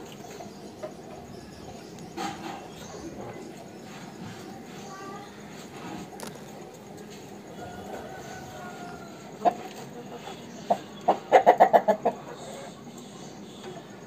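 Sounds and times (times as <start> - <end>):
rooster clucking: 7.4 - 12.9.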